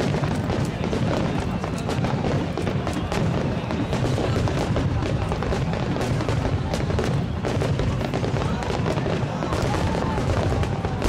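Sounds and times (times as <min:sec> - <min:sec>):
fireworks bangs and crackling: 0:00.0 - 0:11.0.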